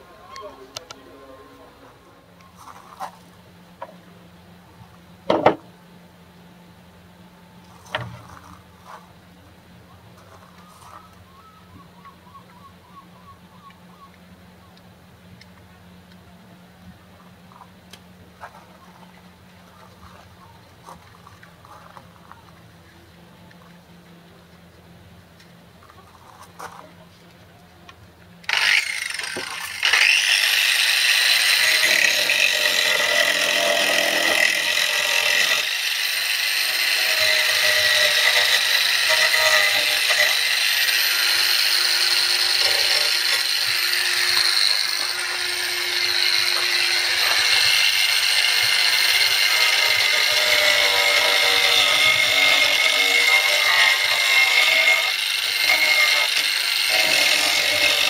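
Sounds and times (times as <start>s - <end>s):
angle grinder whining: 28.5s - 58.0s.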